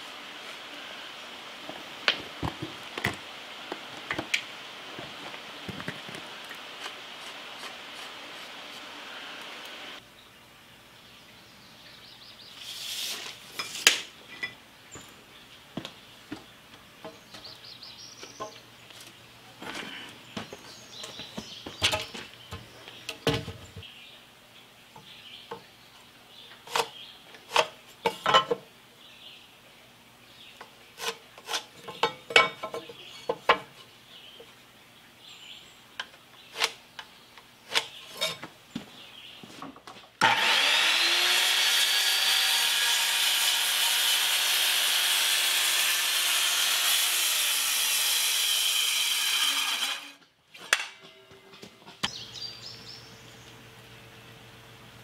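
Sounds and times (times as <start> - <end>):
electric saw cutting wood: 40.2 - 50.2.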